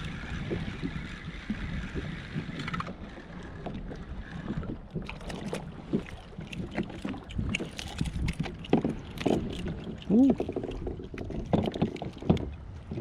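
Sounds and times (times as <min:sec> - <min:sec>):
waves lapping against plastic hull: 0:00.0 - 0:13.0
fishing gear knocks and clicks: 0:04.9 - 0:12.6.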